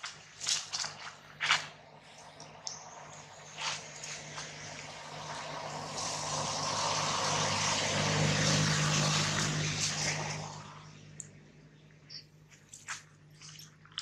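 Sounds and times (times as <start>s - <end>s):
motor vehicle passing by: 0.9s - 11.5s.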